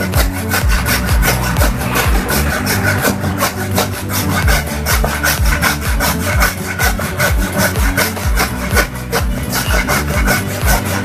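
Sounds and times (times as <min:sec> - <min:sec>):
hand saw cutting wood: 0:04.8 - 0:11.0.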